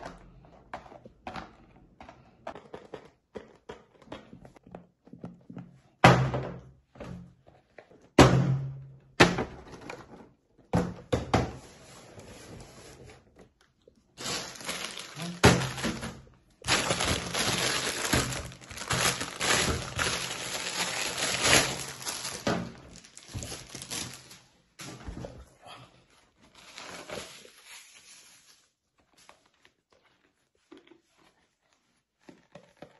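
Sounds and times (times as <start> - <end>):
rustling handling noise: 11.7 - 25.0.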